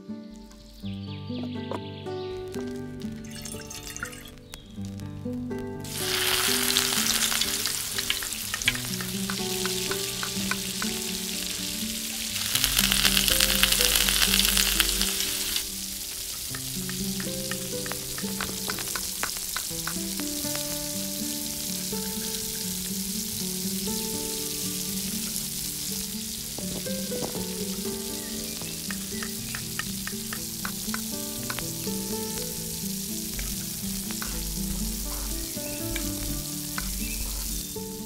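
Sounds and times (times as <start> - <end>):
food sizzling in oil: 2.4 - 5.2, 5.8 - 38.0
sharp ticks: 6.0 - 15.6, 16.3 - 20.8, 27.3 - 32.6.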